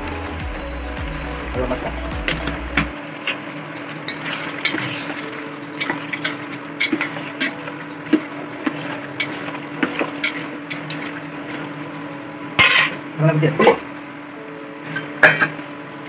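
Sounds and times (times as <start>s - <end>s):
steady low hum: 0.0s - 3.0s
spatula scraping metal pot: 12.6s - 13.0s.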